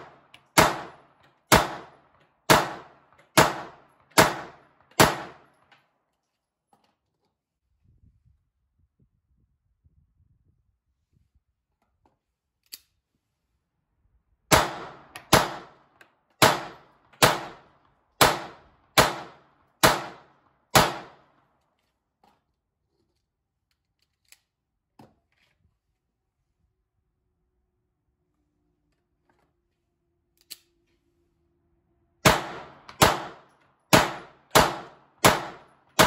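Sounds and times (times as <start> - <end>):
pistol shots: 0.0 - 5.6, 14.5 - 15.8, 16.4 - 21.2, 32.2 - 36.0.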